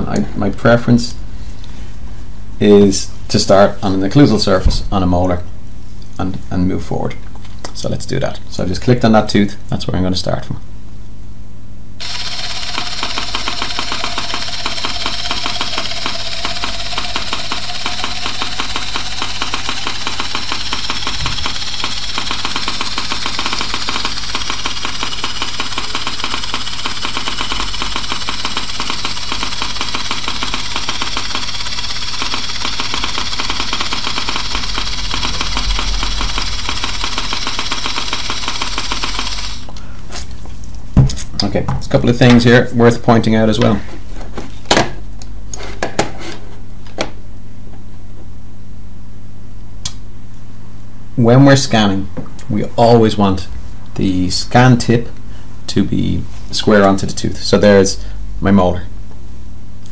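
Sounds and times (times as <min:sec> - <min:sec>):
scanner wand mechanical rattle: 0:12.0 - 0:39.7.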